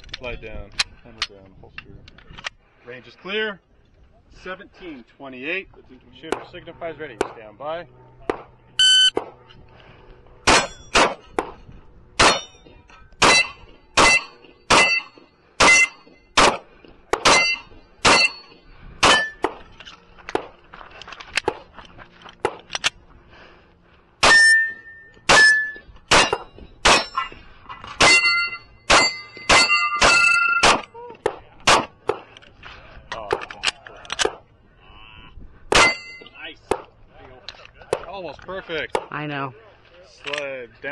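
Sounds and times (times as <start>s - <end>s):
steel targets ringing: 10.5s - 11.2s, 12.2s - 16.1s, 17.2s - 19.4s, 24.2s - 27.4s, 28.0s - 30.8s, 35.8s - 36.4s
pistol shots: 10.5s - 11.6s, 12.2s - 12.5s, 13.2s - 18.4s, 19.0s - 19.6s, 25.3s - 27.2s, 28.0s - 30.9s, 31.6s - 32.2s, 35.7s - 36.0s.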